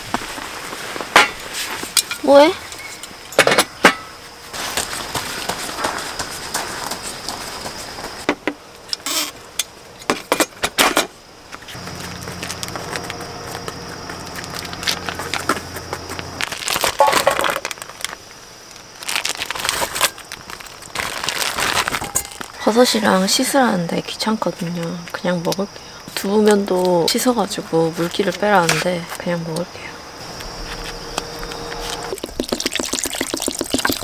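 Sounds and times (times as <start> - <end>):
low steady hum: 0.3 - 32.7
plastic bag rustling: 4.4 - 8.2, 11.6 - 22.6.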